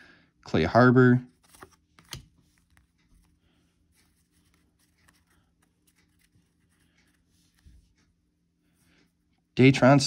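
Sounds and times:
low steady hum: 0.0 - 10.0
cards being flipped: 1.3 - 7.8.

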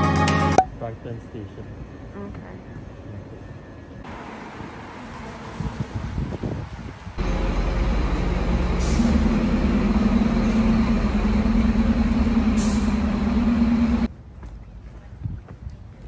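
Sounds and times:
bus engine running: 5.6 - 14.1.

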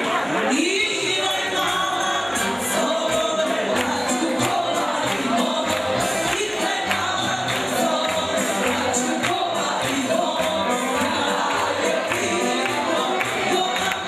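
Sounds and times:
folk band playing: 0.0 - 14.0
guests singing along: 0.0 - 14.0
woman singing into a microphone: 0.0 - 14.0.

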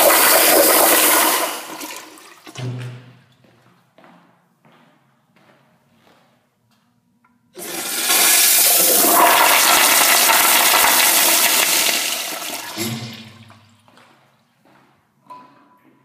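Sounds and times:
toilet flushing: 0.0 - 2.6, 7.6 - 13.8.

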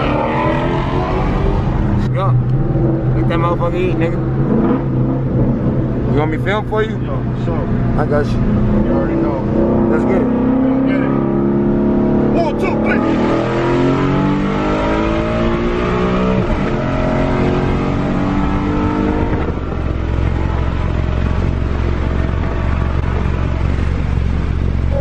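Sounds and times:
car engine at full throttle: 0.0 - 25.0.

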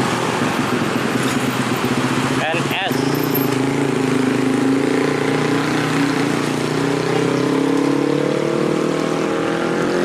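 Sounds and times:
vehicle engine running: 0.0 - 8.0.

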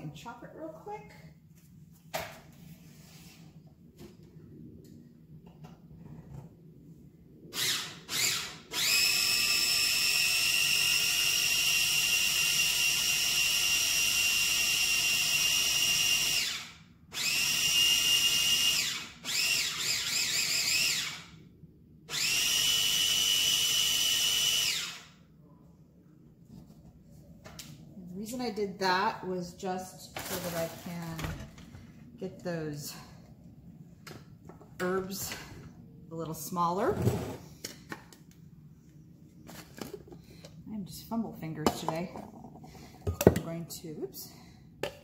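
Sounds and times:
electric food chopper whining: 7.6 - 21.4, 22.1 - 25.2.

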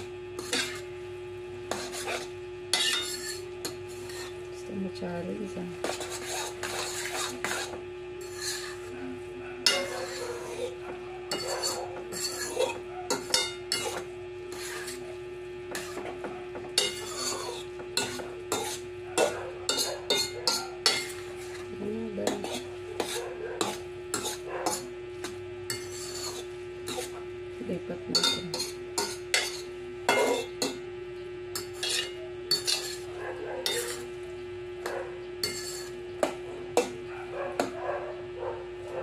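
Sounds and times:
steady hum: 0.0 - 39.0
metal utensil scraping a pan: 0.4 - 0.9, 1.7 - 4.4, 5.8 - 8.9, 9.6 - 15.0, 15.7 - 16.2, 16.8 - 27.1, 28.1 - 30.8, 31.6 - 34.1, 35.4 - 36.9.

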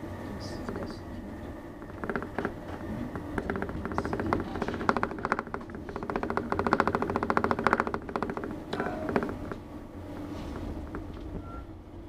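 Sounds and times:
train rumbling: 0.0 - 12.0
fast clicking rattle: 1.8 - 9.6.

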